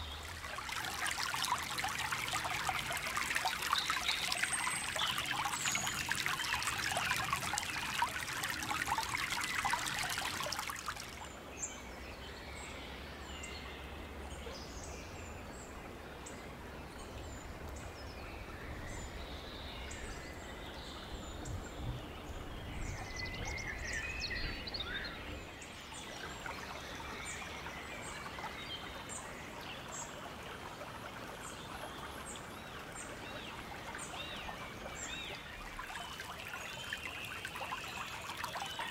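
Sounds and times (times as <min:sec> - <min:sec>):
stream trickling over gravel: 0:00.0 - 0:11.8, 0:22.0 - 0:38.9.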